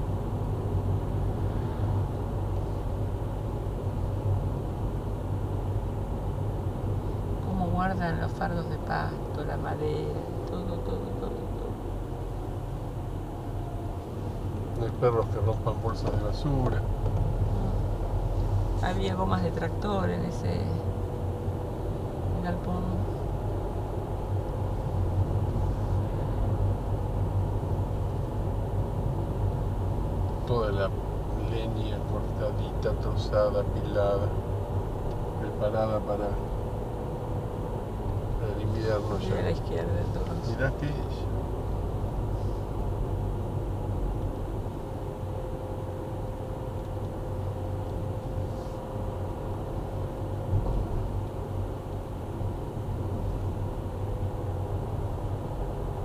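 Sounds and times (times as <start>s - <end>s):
car engine and tyre noise: 0.0s - 56.0s
faint constant whine: 0.0s - 56.0s.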